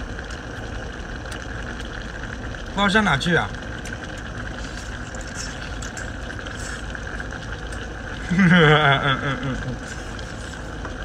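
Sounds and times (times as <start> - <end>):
man laughing: 8.2 - 9.9.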